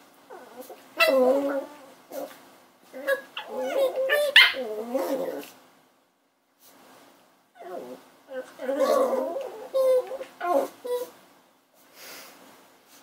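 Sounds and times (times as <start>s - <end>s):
puppies growling and whining: 0.3s - 5.6s, 7.6s - 11.2s
puppy yipping: 3.0s - 4.7s.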